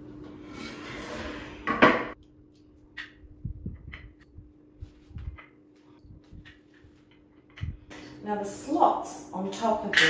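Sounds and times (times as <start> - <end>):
wooden frame scraping on floor: 0.4 - 1.7.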